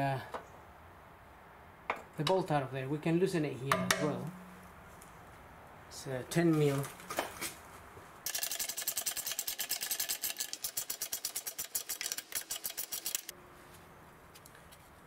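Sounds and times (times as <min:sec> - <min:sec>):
ratcheting wrench clicking: 0:08.3 - 0:13.3.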